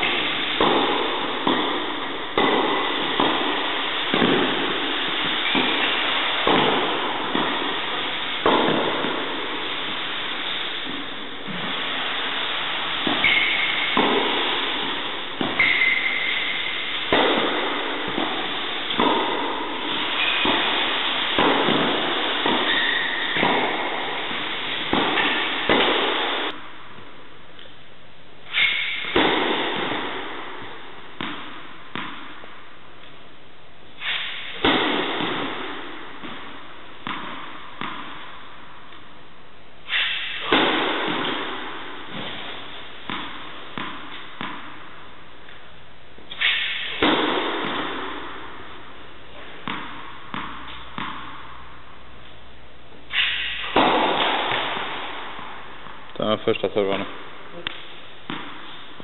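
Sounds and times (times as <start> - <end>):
tennis ball struck by racket: 0.0 - 11.8, 13.0 - 26.6, 28.5 - 32.4, 34.0 - 39.0, 39.8 - 44.9, 46.2 - 51.8, 52.9 - 56.1, 56.9 - 59.0
ball bouncing on hard court: 0.0 - 26.7, 28.5 - 33.1, 34.0 - 39.0, 39.9 - 45.6, 46.2 - 51.9, 52.9 - 59.0
shoes squeaking on court: 13.2 - 14.0, 15.4 - 16.6, 22.5 - 23.5.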